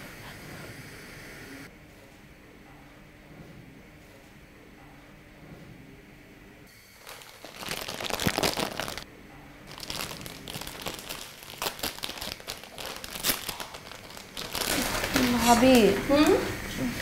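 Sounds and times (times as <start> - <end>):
plastic snack packet crinkling: 7.0 - 9.0, 9.7 - 15.7.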